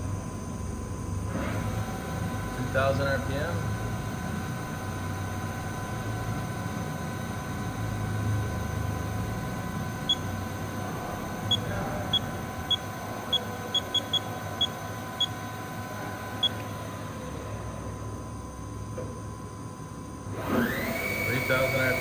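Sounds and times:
machine spindle whine: 0.0s - 22.0s
control panel beeps: 10.0s - 10.4s, 11.4s - 15.5s, 16.4s - 16.6s.

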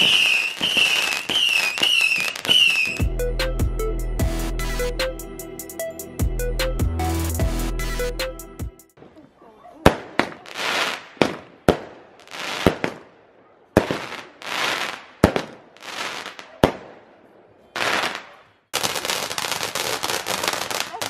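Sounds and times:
hissing firework shots: 0.0s - 3.0s, 9.8s - 13.2s, 13.8s - 17.1s, 17.8s - 21.0s
fountain firework crackling hiss: 18.8s - 21.0s.

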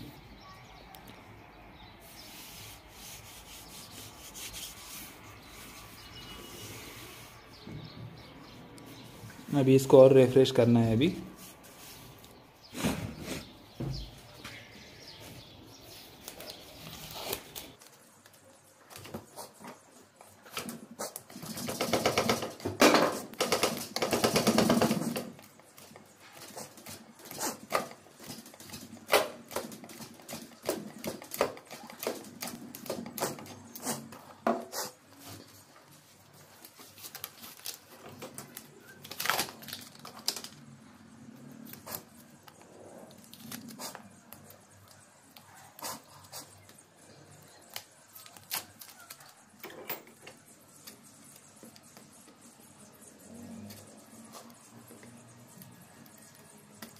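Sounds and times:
hand sanding wood: 2.0s - 7.4s.

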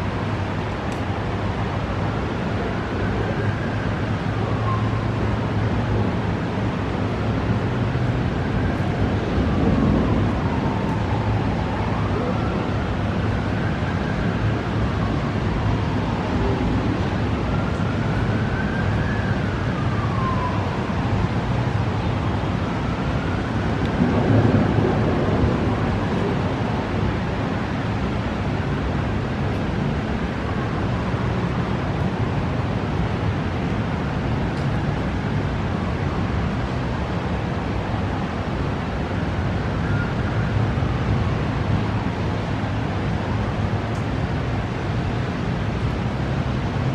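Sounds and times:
wind: 0.0s - 46.9s
siren wailing: 2.9s - 5.3s, 8.2s - 26.6s
thunder rumbling: 9.0s - 11.8s, 23.6s - 27.2s.

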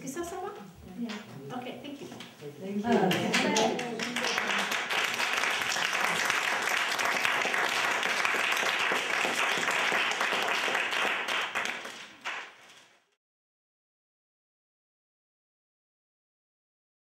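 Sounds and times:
audience applauding: 3.1s - 12.9s.

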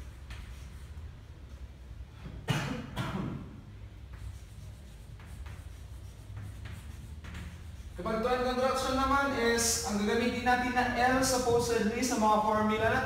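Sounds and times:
chalk scratching on blackboard: 0.0s - 1.2s, 3.9s - 9.9s
low room hum: 0.0s - 13.0s.

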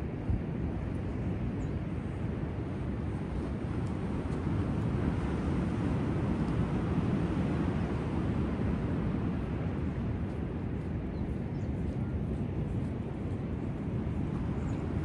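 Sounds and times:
ocean surf: 2.5s - 10.7s.

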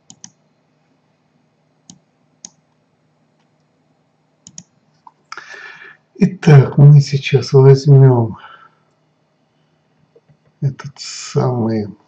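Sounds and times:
computer mouse clicks: 0.0s - 0.4s, 1.8s - 2.6s, 4.4s - 4.7s
faint steady hum: 0.0s - 12.0s.

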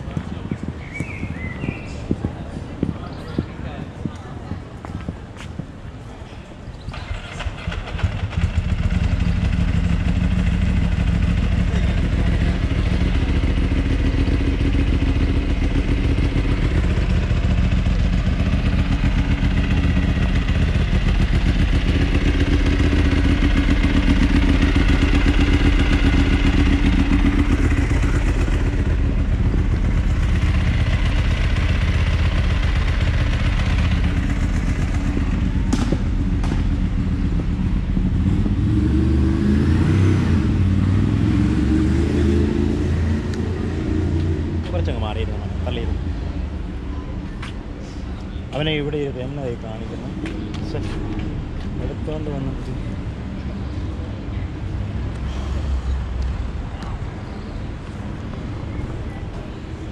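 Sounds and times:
motorcycle engine idling: 6.9s - 38.7s.

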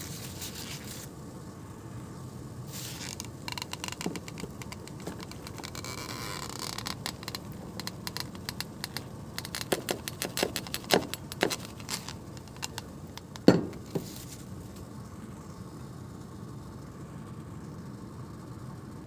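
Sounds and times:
small clicks and light knocks: 3.1s - 14.2s.

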